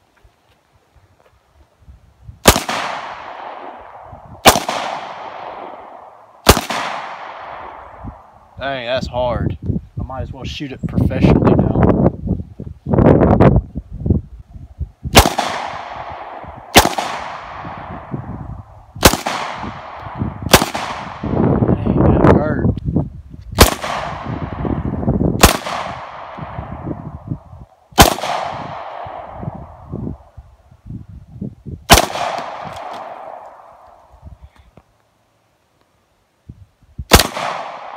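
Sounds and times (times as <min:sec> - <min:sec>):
pistol shots with short echo: 0:02.4 - 0:07.8, 0:15.1 - 0:18.1, 0:19.0 - 0:21.3, 0:23.6 - 0:24.6, 0:25.4 - 0:26.9, 0:28.0 - 0:29.4, 0:31.9 - 0:33.8, 0:37.1 - 0:37.9.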